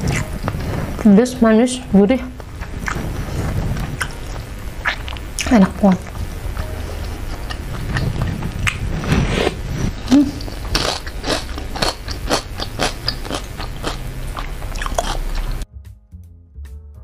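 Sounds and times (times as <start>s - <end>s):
person chewing wetly: 0.0s - 0.7s, 2.4s - 15.6s.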